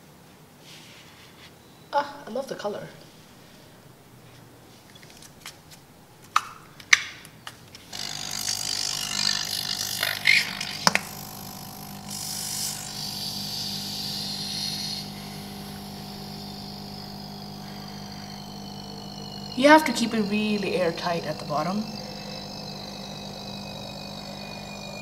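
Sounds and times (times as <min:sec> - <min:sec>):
small air pump humming: 0:07.8 - 0:25.0.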